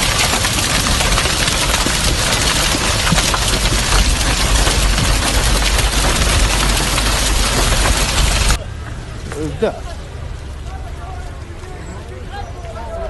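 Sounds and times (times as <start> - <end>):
hail pelting a car: 0.0 - 8.6
steady low rumble: 0.0 - 9.3.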